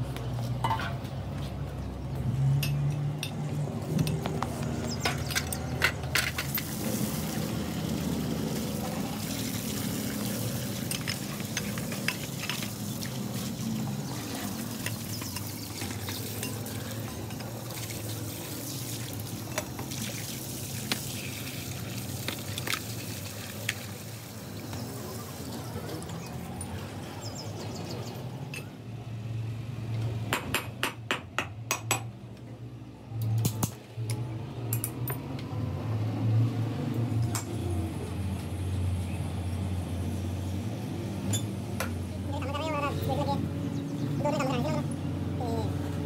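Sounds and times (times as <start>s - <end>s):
water from hose splashing on metal: 4.9s - 26.6s.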